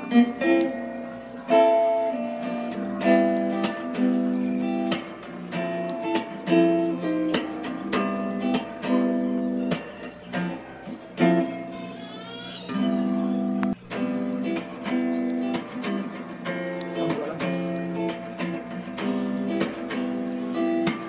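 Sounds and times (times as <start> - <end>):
acoustic guitar strumming: 0.0 - 21.0.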